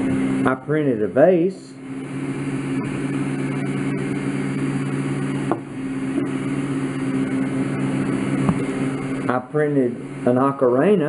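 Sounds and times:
electric machine hum: 0:00.0 - 0:11.0.

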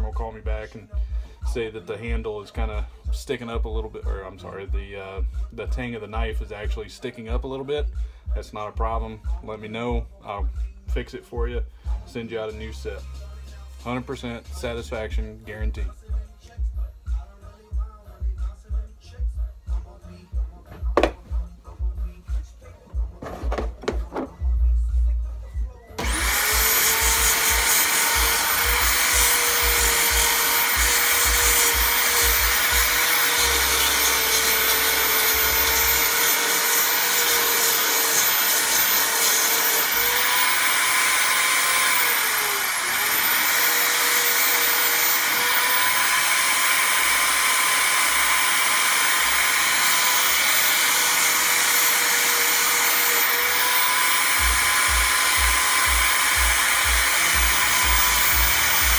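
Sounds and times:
sanding wheel motor whine: 0:26.0 - 0:58.9.

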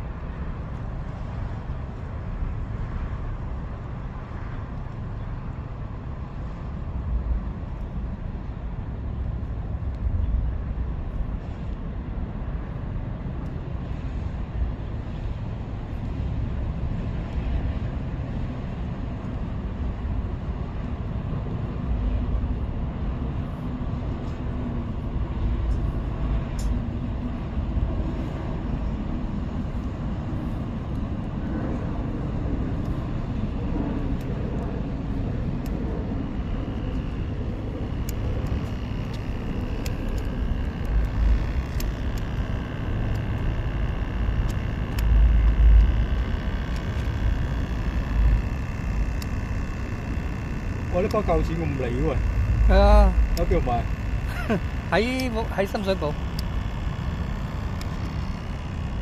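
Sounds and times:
low outdoor rumble: 0:00.0 - 0:59.0
faint clicks: 0:38.0 - 0:51.3.

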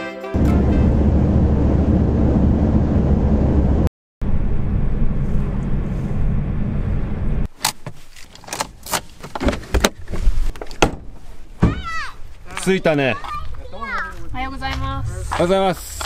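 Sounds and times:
car interior road rumble: 0:00.4 - 0:07.6, 0:13.4 - 0:16.0.

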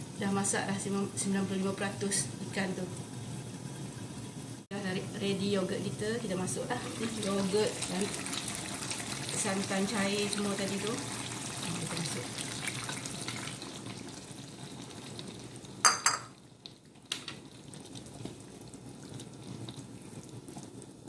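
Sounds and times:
curry bubbling: 0:05.6 - 0:21.0.

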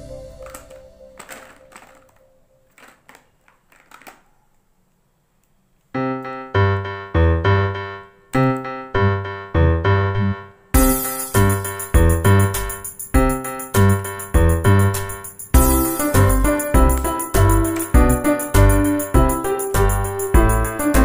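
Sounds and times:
keyboard tune with bass line: 0:06.0 - 0:21.0.

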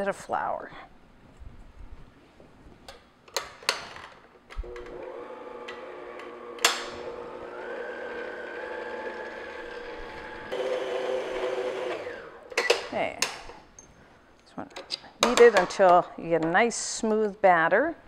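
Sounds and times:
stand mixer running: 0:04.6 - 0:12.3.

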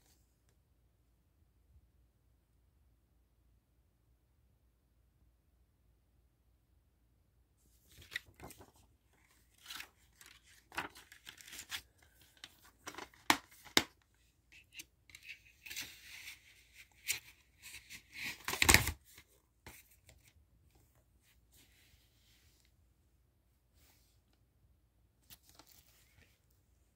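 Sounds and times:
cardboard packaging rustling: 0:07.9 - 0:14.0.

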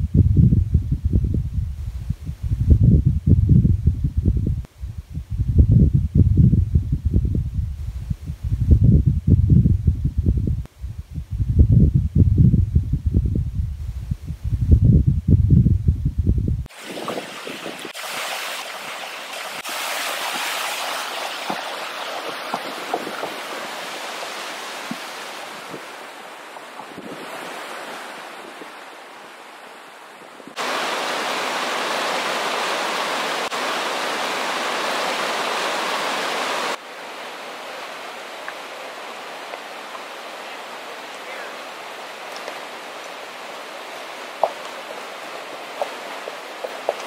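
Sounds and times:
creek water rushing: 0:16.7 - 0:47.0
horse hooves on wooden bridge: 0:21.4 - 0:26.0, 0:43.8 - 0:47.0.

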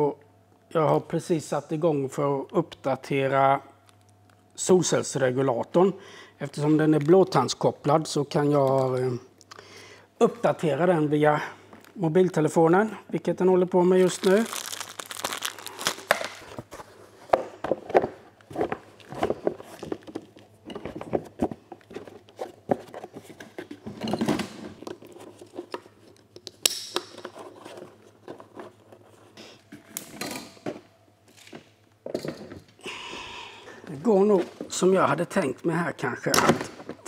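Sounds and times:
strap rustling: 0:14.0 - 0:16.8.

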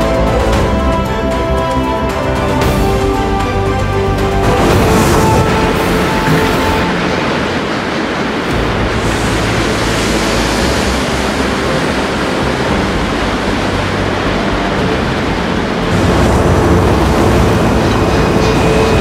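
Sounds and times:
cooling water rushing: 0:00.0 - 0:19.0
deep mill rumble: 0:00.0 - 0:19.0.

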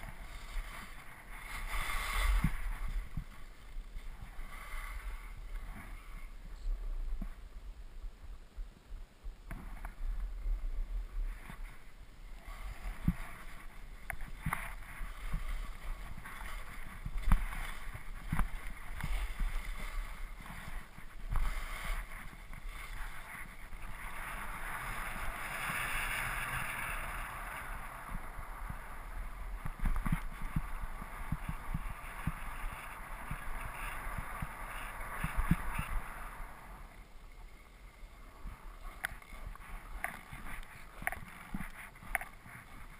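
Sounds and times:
skis thumping over bumps: 0:00.0 - 0:06.1, 0:11.1 - 0:36.6
skis scraping over snow: 0:00.0 - 0:07.4, 0:09.5 - 0:42.9.

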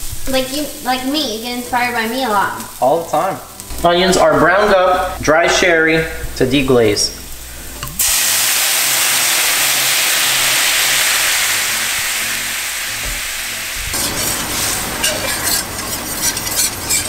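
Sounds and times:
liquid sizzling in a hot pan: 0:00.0 - 0:05.0, 0:07.0 - 0:17.0
pan clattering while stirred: 0:14.0 - 0:17.0.

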